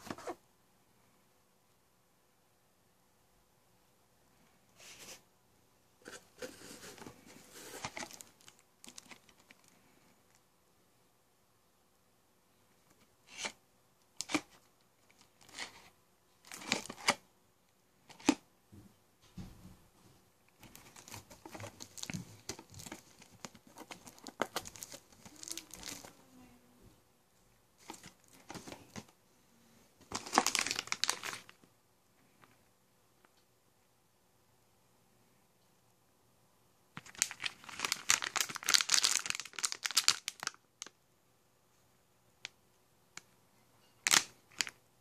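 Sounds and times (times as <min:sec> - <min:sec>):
plastic wrap crinkling: 0:06.0 - 0:10.4, 0:20.6 - 0:26.3, 0:30.0 - 0:31.6, 0:37.0 - 0:41.0
plastic shrink-wrap ripping: 0:24.1 - 0:26.1, 0:30.1 - 0:31.5, 0:37.0 - 0:40.6.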